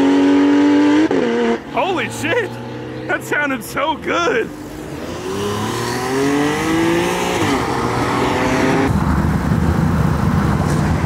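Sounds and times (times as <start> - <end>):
car engine accelerating: 0.0 - 11.0
pickup truck engine rumbling: 8.8 - 11.0.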